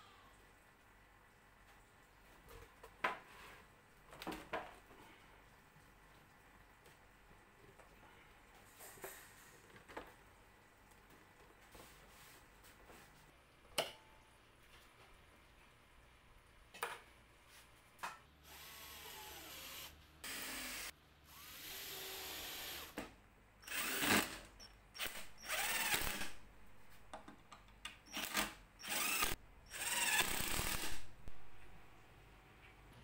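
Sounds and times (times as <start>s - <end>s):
cordless drill driving screws: 18.5s - 23.0s, 23.6s - 24.4s, 25.0s - 26.4s, 28.1s - 31.0s.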